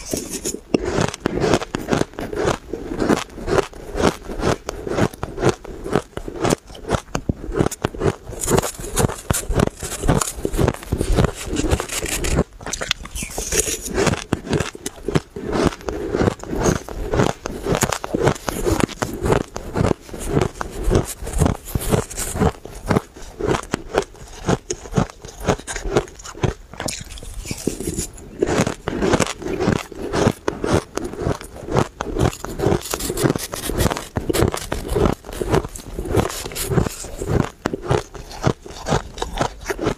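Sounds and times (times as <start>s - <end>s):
metal spoon scraping ice in pot: 0.0s - 0.6s, 11.2s - 14.2s, 32.4s - 37.4s
chewing crunchy ice: 0.0s - 39.9s.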